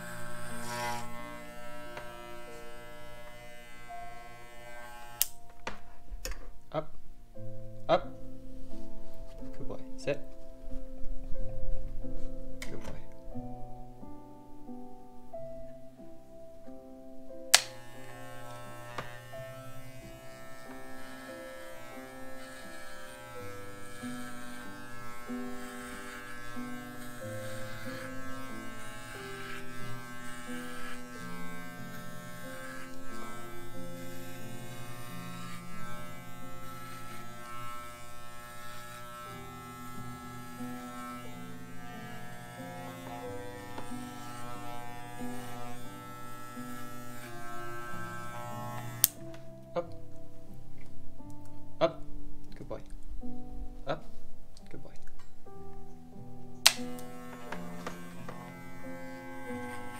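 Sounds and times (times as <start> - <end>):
electric pet clippers buzzing: 0.0 - 5.4, 17.5 - 49.3, 56.6 - 59.9.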